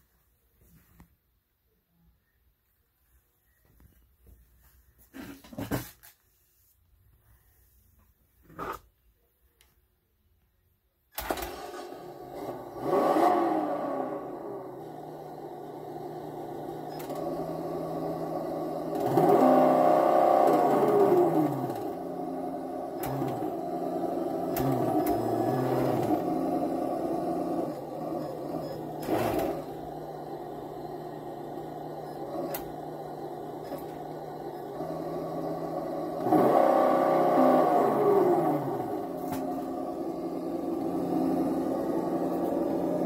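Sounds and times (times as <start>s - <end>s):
simulated engine idling and revving: 11.7s - 43.0s.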